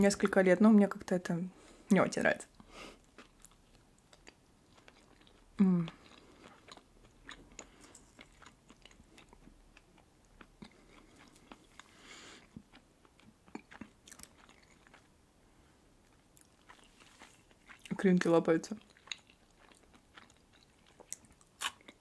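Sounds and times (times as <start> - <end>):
chewing sandwich: 3.0 - 15.2, 16.0 - 18.0, 18.8 - 22.0.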